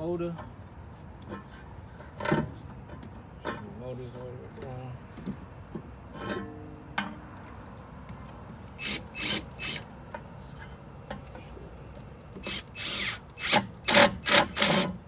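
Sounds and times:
metal brake parts scraping: 6.1 - 7.2.

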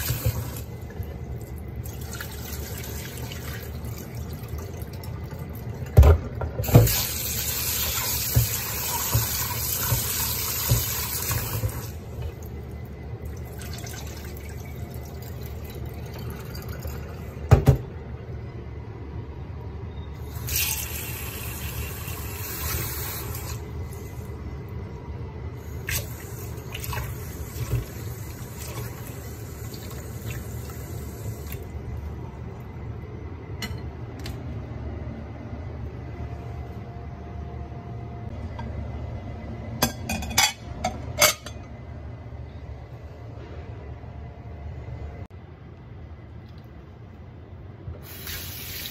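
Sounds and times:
tap water running into bowl: 6.6 - 11.9.

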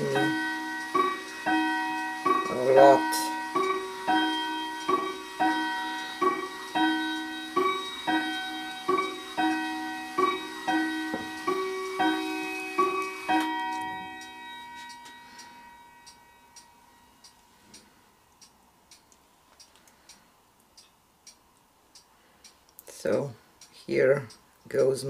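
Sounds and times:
bell-like chime melody: 0.0 - 17.2
faint clock ticking: 0.0 - 25.0.

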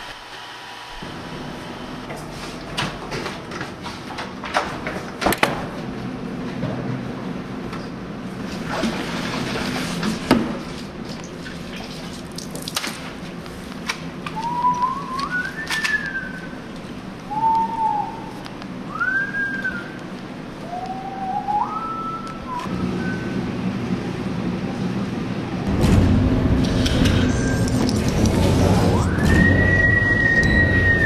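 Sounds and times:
person whistling a tune: 14.4 - 16.5, 17.3 - 18.3, 18.9 - 20.0, 20.6 - 23.4, 29.0 - 31.0.

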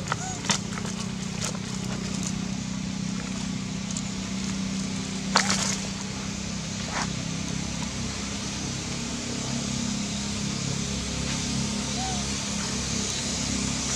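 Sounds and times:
dry leaves and twigs crackling: 0.0 - 6.2.

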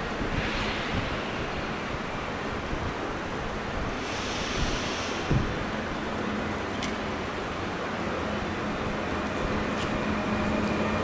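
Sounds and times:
train rumble: 0.0 - 11.0
brief hiss: 0.3 - 2.2, 4.0 - 5.7.

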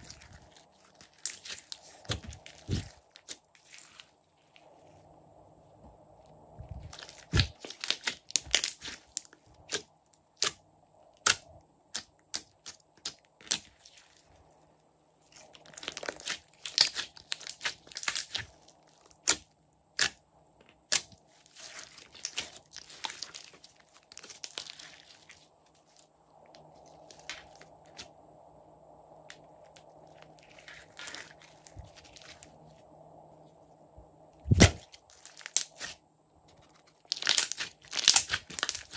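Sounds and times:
slime crackling and popping: 0.0 - 4.1, 6.8 - 10.6, 15.3 - 20.2, 20.9 - 25.4, 34.5 - 36.0, 37.0 - 38.9.

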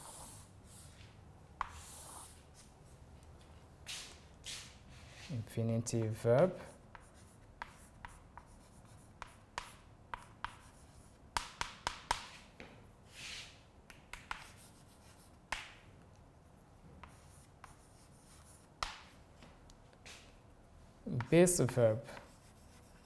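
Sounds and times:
chalk scratching on blackboard: 0.0 - 2.8, 6.5 - 12.4, 13.1 - 15.6, 17.0 - 19.2, 21.2 - 23.0
chalk tapping on blackboard: 1.6 - 2.7, 6.0 - 12.4, 13.2 - 15.8, 16.9 - 19.2, 21.1 - 23.0.

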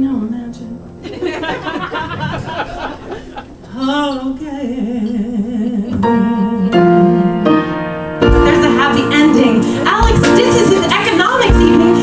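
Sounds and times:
steady accompanying tones: 0.0 - 12.0
woman singing with vibrato: 3.6 - 7.5, 8.4 - 12.0.

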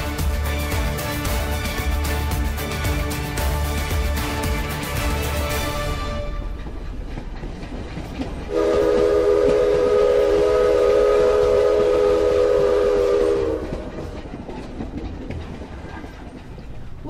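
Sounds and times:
train whistle chord: 8.5 - 14.2.

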